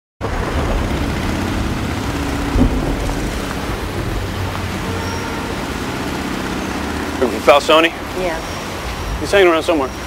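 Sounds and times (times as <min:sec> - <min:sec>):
city traffic rumble: 0:00.2 - 0:10.0
short loud bump: 0:02.2 - 0:05.4.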